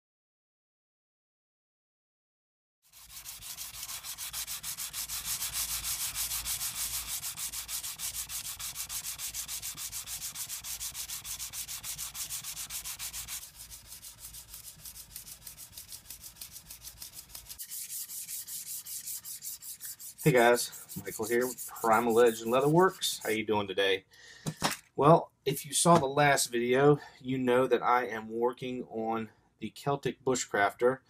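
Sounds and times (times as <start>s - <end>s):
knife blade being sanded: 2.9s - 23.4s.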